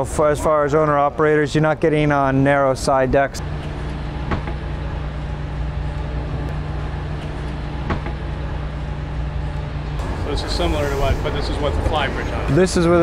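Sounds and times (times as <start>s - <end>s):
low mechanical hum: 0.0s - 13.0s
low rumbling noise: 3.4s - 13.0s.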